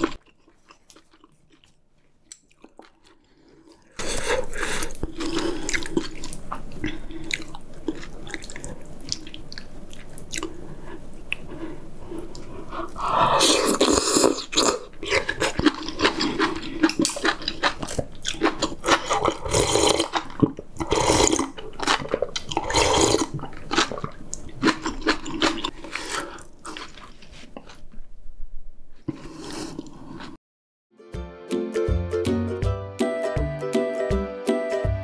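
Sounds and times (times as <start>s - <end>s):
wet chewing and slurping: 0.0s - 27.8s
music: 30.9s - 35.0s.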